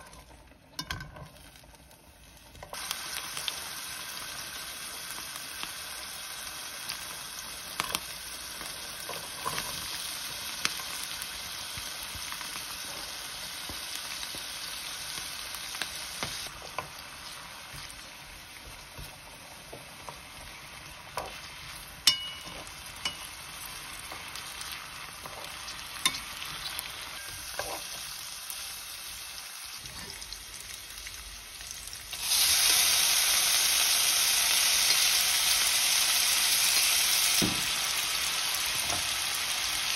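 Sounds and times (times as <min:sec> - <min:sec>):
food sizzling in frying pan: 0:00.0 - 0:39.9
spatula tapping pan: 0:21.1 - 0:24.3.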